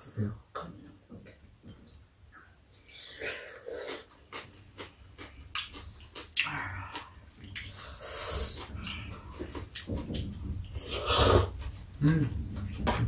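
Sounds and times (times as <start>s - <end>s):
person slurping noodles and soup: 6.8s - 9.7s, 10.8s - 11.8s.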